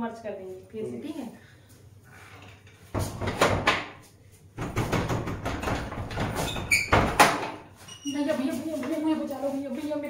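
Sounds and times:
knocking on rattling wooden door: 3.0 - 3.9, 4.6 - 7.6.

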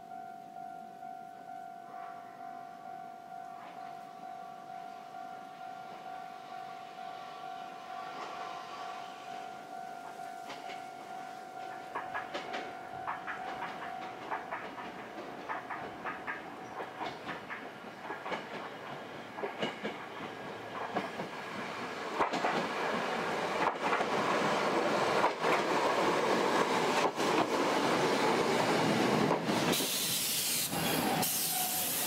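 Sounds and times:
train wheels clicking over rail joints: 10.0 - 32.0
loud hiss: 29.7 - 32.0.

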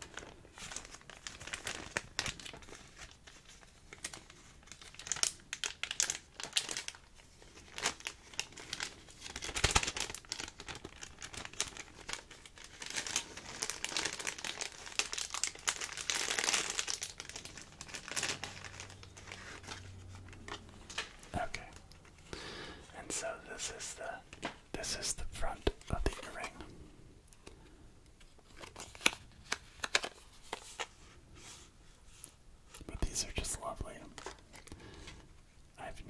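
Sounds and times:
plastic bag crinkling: 0.0 - 22.2.

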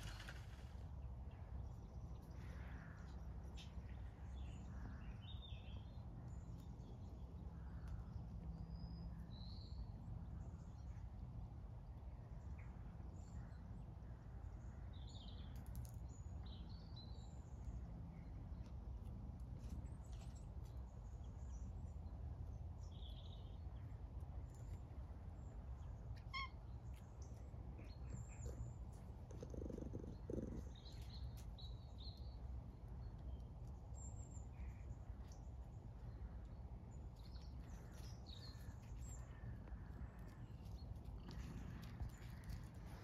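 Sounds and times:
small birds chirping: 11.8 - 43.0
steady low rumble: 26.8 - 43.0.

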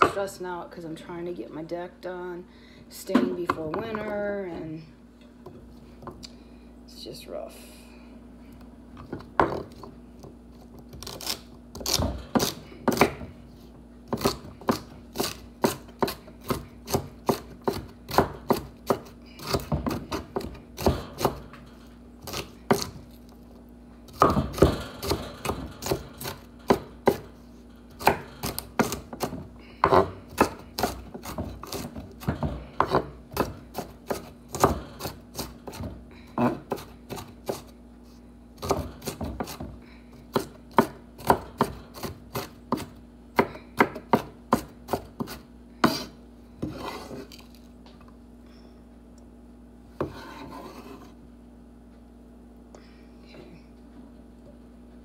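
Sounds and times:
knife chopping on wooden board: 11.0 - 13.3, 14.1 - 21.5, 22.3 - 23.0, 24.1 - 27.3, 28.0 - 37.7, 38.6 - 39.7, 40.3 - 47.3.

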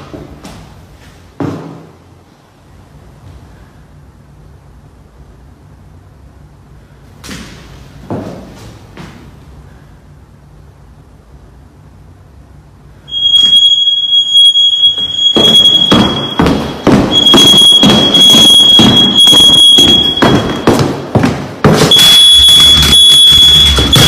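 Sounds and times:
smoke alarm tone: 13.1 - 20.8, 21.9 - 24.0.

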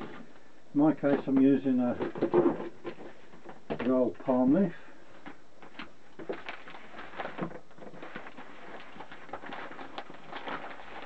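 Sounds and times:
newspaper crinkling and rustling: 5.2 - 11.0.

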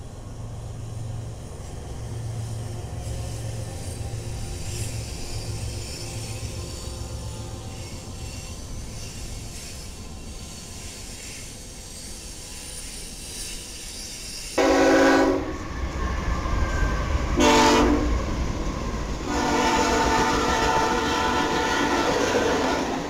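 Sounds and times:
freight train rumble: 0.0 - 23.0
locomotive air horn blasts: 14.6 - 15.7, 17.4 - 18.2, 19.2 - 23.0.

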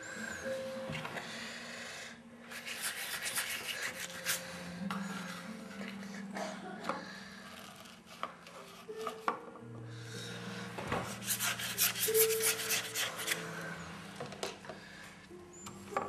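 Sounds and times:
art tool rubbing on painting surface: 2.5 - 5.9, 10.9 - 13.9.

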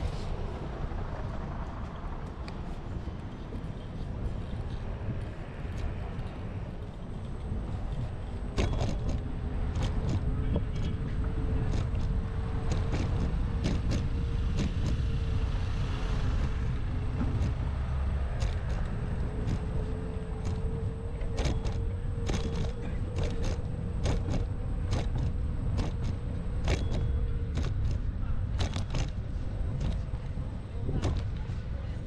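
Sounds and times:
vehicle rumble and hum: 0.0 - 32.0
sharp clicks and rattles: 7.1 - 31.6.

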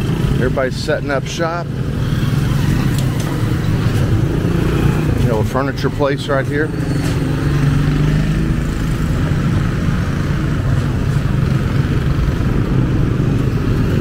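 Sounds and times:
road traffic noise: 0.0 - 14.0
small motorcycle engine running: 1.7 - 5.2.

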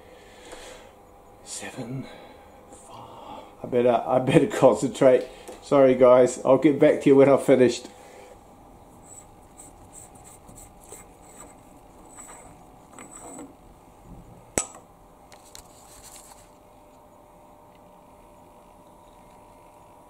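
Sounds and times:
faint hum: 0.0 - 20.0
metal ring scraping on thread: 11.4 - 13.6.

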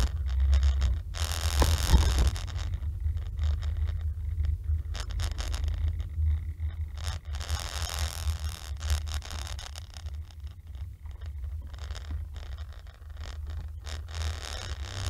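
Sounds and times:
scratchy clicks and rattles: 0.0 - 15.0
car engine and road drone: 0.1 - 7.4.

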